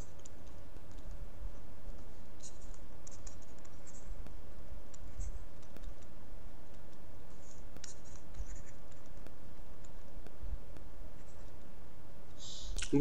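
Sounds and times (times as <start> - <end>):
steady low hum: 0.0 - 13.0
stylus scratching on pen tablet: 2.0 - 4.3, 4.9 - 6.0, 7.3 - 9.3.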